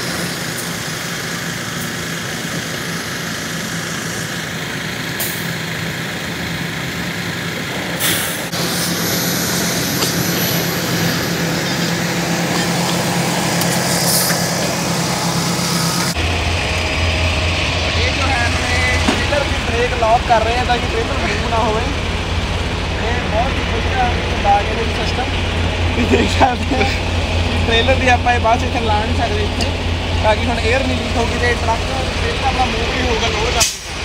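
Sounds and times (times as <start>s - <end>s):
truck engine running: 0.0s - 34.0s
short air hisses: 8.0s - 12.0s, 13.6s - 14.8s.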